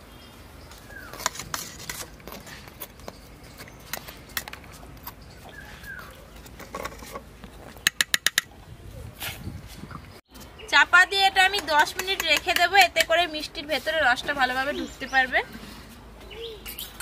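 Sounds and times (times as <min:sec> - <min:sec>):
bird calling: 0:05.1 - 0:06.4, 0:14.6 - 0:17.0
sharp taps on bowl: 0:11.5 - 0:13.2.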